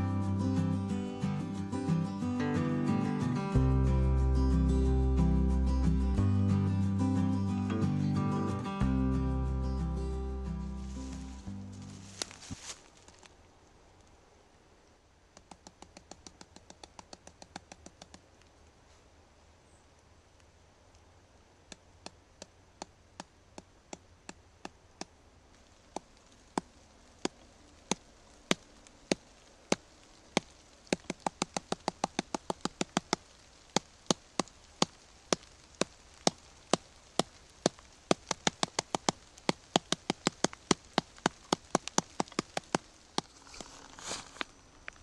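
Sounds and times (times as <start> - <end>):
fingers tapping on fungus: 15.3 - 18.3, 21.7 - 25.1, 25.9 - 43.8.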